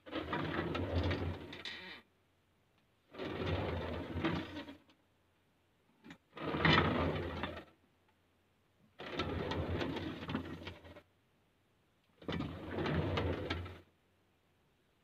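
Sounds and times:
chair casters rolling on hard floor: 0.1s - 1.6s, 3.1s - 4.8s, 6.4s - 7.7s, 9.0s - 11.0s, 12.2s - 13.8s.

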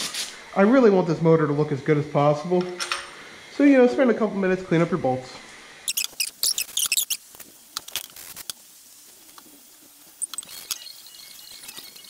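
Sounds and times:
metal bolts clinking: 2.6s - 3.2s.

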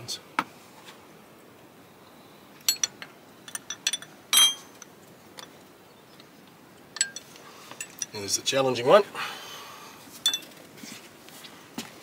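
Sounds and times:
spanner clinking against bolts: 2.6s - 5.6s, 6.9s - 8.3s, 10.2s - 10.6s.

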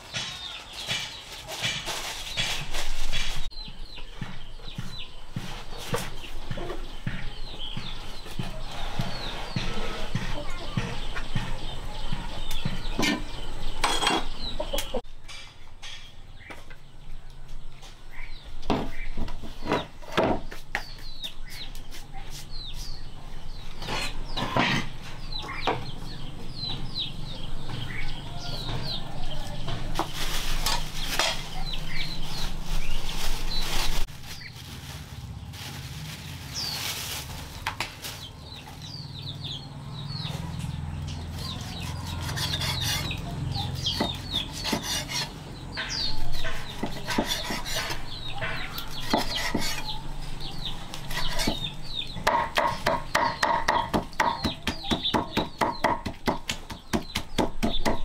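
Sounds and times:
chicks peeping: 0.0s - 15.0s, 20.8s - 58.0s
chickens clucking: 0.0s - 15.4s, 38.1s - 58.0s
rustling and scraping: 0.0s - 16.2s, 18.8s - 39.1s, 40.2s - 52.1s.

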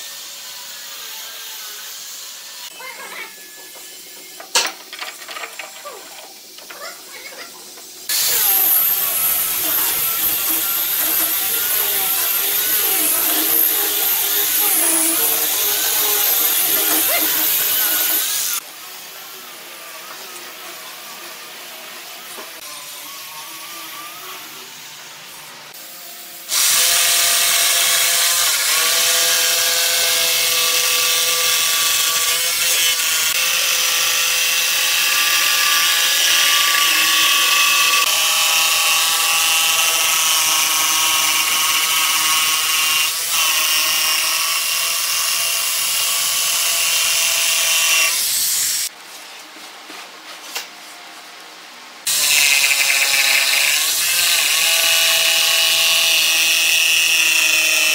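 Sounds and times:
jigsaw cutting wood: 8.1s - 18.6s, 52.1s - 57.9s.

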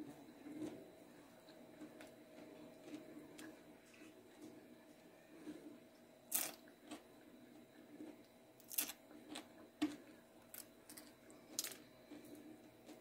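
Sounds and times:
soft chewing: 0.0s - 13.0s
crisp crunches of biting fish: 6.3s - 7.0s, 8.6s - 11.8s.

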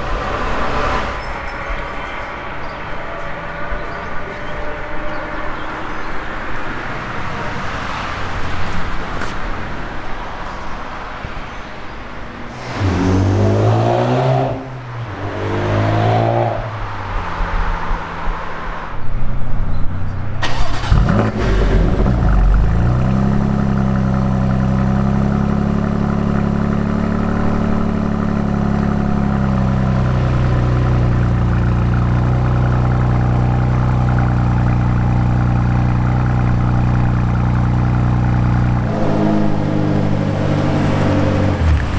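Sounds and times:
traffic noise: 0.0s - 41.9s
rising engine sweeps: 12.4s - 16.8s
car engine starting and idling: 20.4s - 41.9s.

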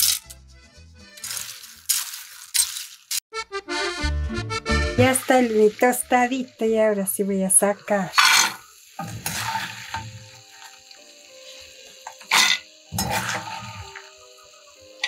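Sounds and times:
corn kernels rattling on metal: 1.2s - 3.2s
metal spoon scraping a pan: 8.1s - 10.8s, 12.1s - 14.0s.

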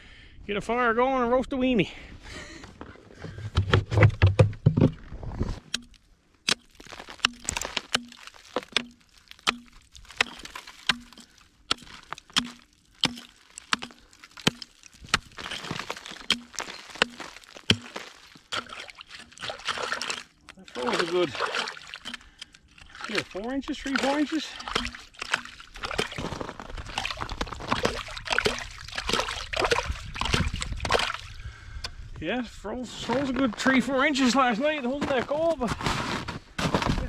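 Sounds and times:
axe chopping ice: 5.7s - 31.3s.

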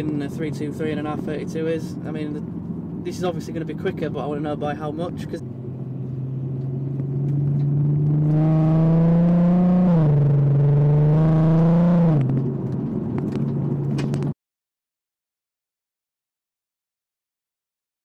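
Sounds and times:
car engine accelerating: 0.0s - 14.3s.

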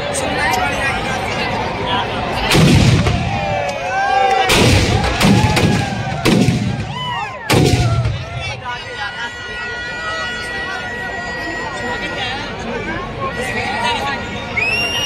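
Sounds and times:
voices shouting: 1.5s - 15.0s
firecracker bangs: 2.5s - 3.6s, 4.5s - 8.6s.

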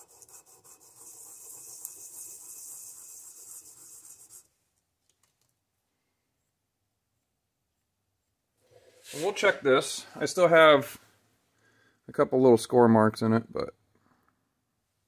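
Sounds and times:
metal rubbing on sandpaper: 0.0s - 4.5s, 8.8s - 9.6s.

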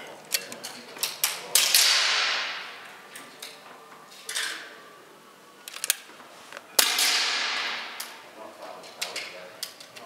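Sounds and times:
air rifle shot cracking: 6.8s - 8.1s.

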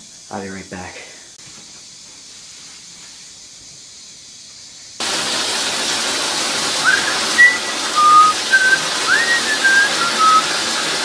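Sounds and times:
shower spray hissing: 0.0s - 11.0s
person whistling: 6.8s - 10.6s.

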